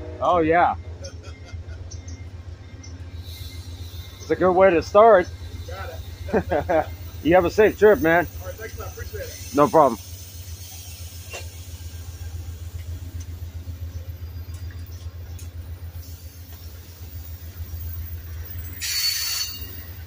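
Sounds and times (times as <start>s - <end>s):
passenger cars rolling past: 0.0s - 20.0s
brief hiss: 18.7s - 19.9s.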